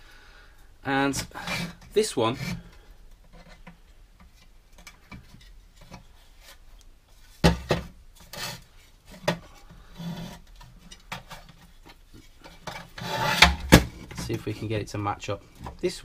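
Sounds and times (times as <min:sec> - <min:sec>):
sheet metal rubbing and scraping: 0:01.1 - 0:03.7, 0:07.7 - 0:14.8.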